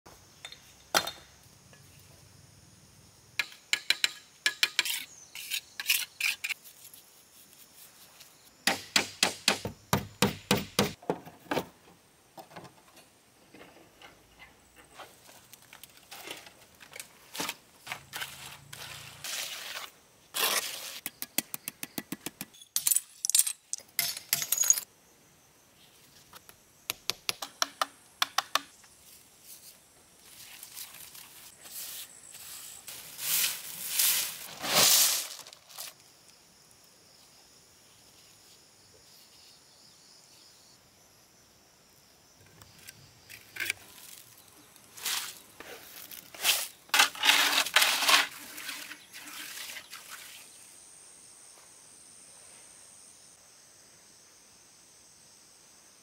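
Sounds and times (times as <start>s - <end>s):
hard pieces clinking and knocking: 22.5s - 24.9s.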